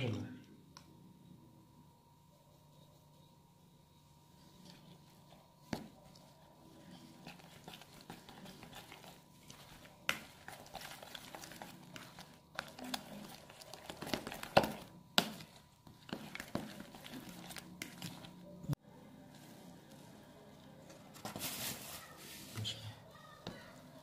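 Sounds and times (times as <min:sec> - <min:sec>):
spoon stirring in plastic bowl: 0:04.4 - 0:18.7.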